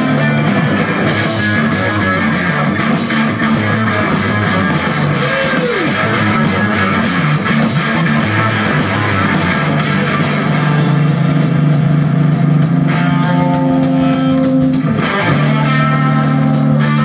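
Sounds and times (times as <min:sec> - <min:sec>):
guitar note bending in pitch: 0:00.0 - 0:11.6
live rock band playing: 0:00.0 - 0:17.0.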